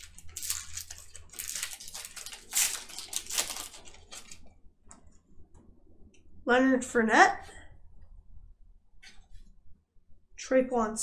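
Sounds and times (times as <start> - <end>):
cards rustling and scraping: 0.0 - 4.5.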